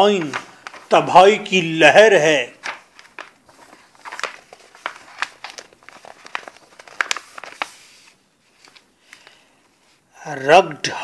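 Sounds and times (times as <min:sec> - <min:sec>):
crinkling crackling: 0:00.0 - 0:09.4.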